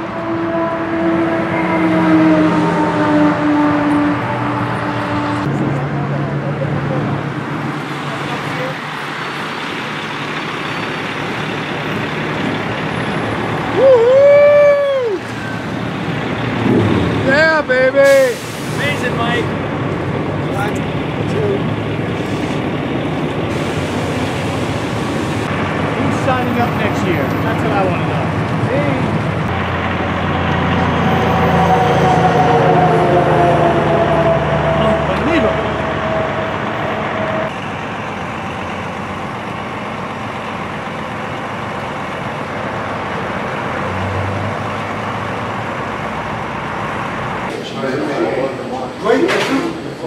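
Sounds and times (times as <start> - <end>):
vehicle engine noise: 0.0 - 50.0
man cheering shout: 13.7 - 15.2.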